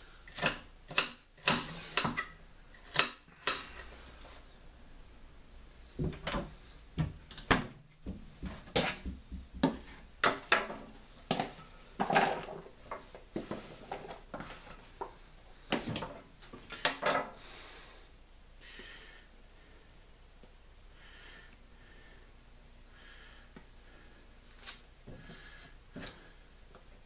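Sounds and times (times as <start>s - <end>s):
knife chopping on wooden board: 0.3s - 2.2s.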